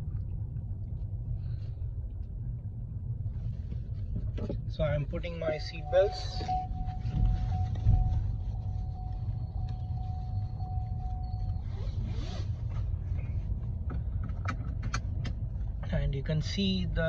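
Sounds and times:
low cabin rumble: 0.0s - 17.0s
seat belt warning tone: 4.7s - 13.8s
seat belt webbing rustle: 6.0s - 13.6s.

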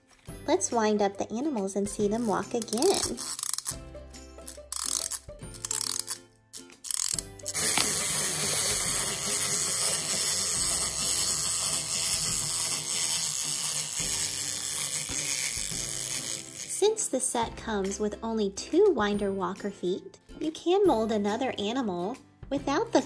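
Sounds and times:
clockwork toys whirring clatter: 2.1s - 3.8s, 4.5s - 6.2s, 6.8s - 16.8s
wind-up key clicks: 2.6s - 3.8s, 4.5s - 6.2s, 6.8s - 16.5s.

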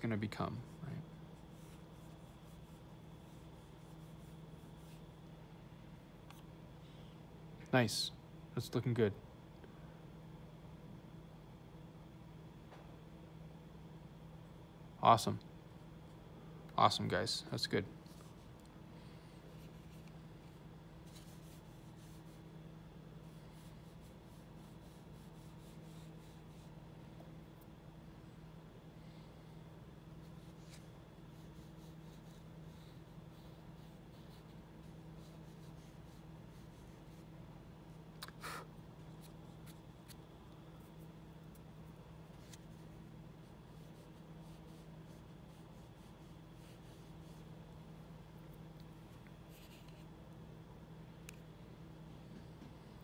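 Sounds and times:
steady low hum: 0.0s - 53.0s
paintbrush rubbing strokes: 0.7s - 5.2s, 19.2s - 22.5s, 23.2s - 26.8s, 30.2s - 37.3s, 40.8s - 47.6s, 49.4s - 50.1s.

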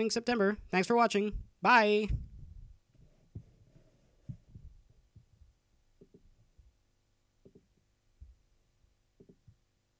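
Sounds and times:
faint high-pitched whine: 0.0s - 9.9s
faint low thumps: 1.2s - 3.6s, 4.2s - 6.8s.

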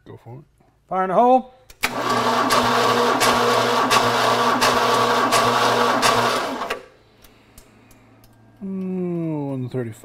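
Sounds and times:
starter motor cranking engine: 1.8s - 6.9s.

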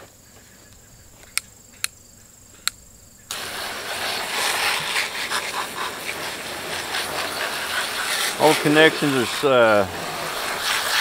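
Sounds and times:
water spraying onto metal: 3.3s - 11.0s.

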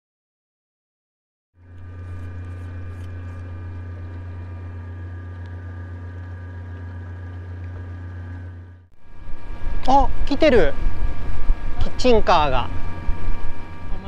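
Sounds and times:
outboard engine drone: 1.6s - 14.0s
water rushing along hull: 1.6s - 14.0s.

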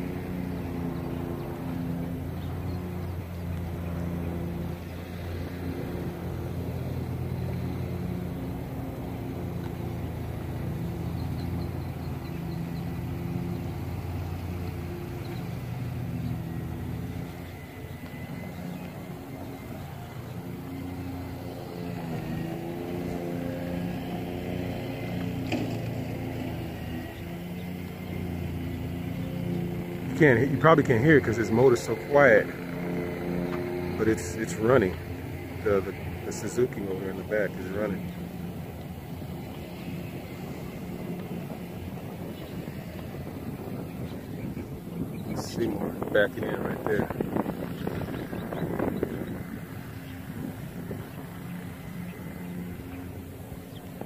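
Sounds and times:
outboard boat engine idling: 0.0s - 54.0s.

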